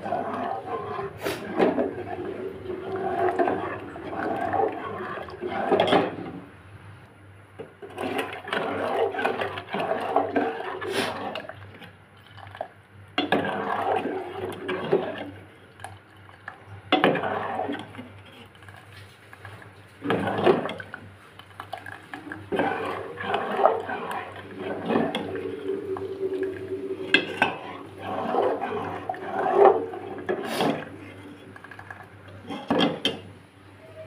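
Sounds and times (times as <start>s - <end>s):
metal spoon scraping a pot: 0.0s - 6.2s, 7.9s - 11.5s, 17.0s - 18.5s, 22.5s - 33.2s
milk mixture sloshing: 0.0s - 6.5s, 7.6s - 33.4s.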